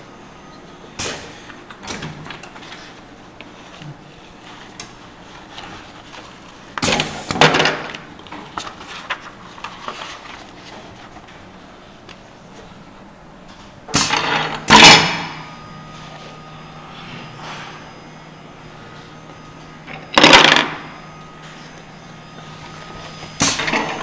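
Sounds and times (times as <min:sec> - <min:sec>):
pages rustling: 0:08.5 - 0:11.4.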